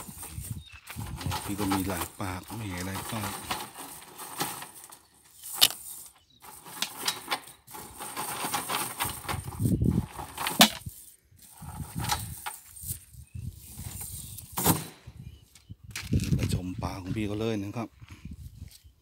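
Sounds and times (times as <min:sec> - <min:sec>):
net rustling and crackling: 0:00.0 - 0:15.0.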